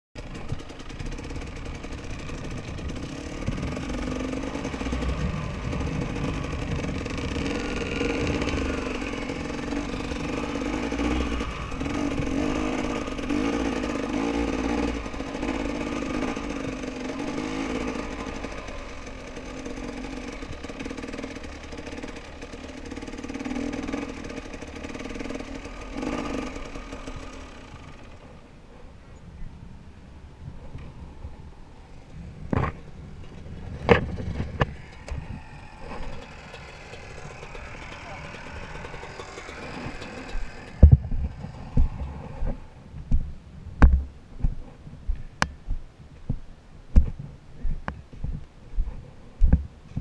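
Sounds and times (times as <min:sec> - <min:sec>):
dirt bike engine revving: 0:00.2 - 0:28.5, 0:31.1 - 0:42.8.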